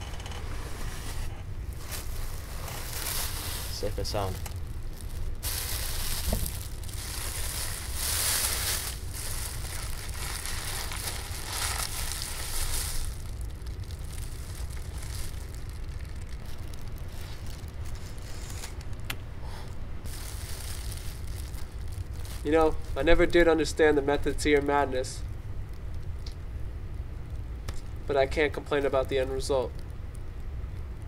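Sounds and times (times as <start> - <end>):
plastic bag crinkling: 1.7 - 19.1, 20.0 - 24.7.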